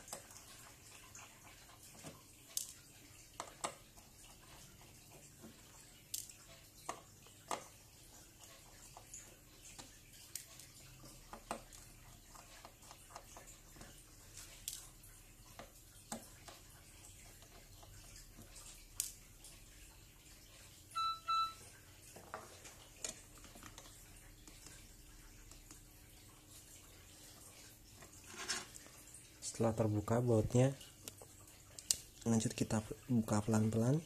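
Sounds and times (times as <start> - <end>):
short electronic beeps: 21.0 - 21.6.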